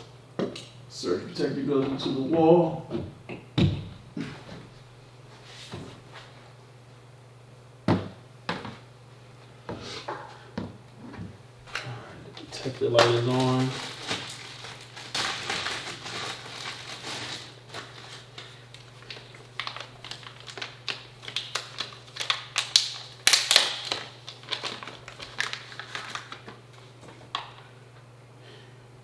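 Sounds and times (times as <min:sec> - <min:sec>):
steady low hum: 0:00.0 - 0:23.3
plastic wrapping rustling: 0:12.4 - 0:27.4
small clicks and crinkles: 0:12.4 - 0:27.6.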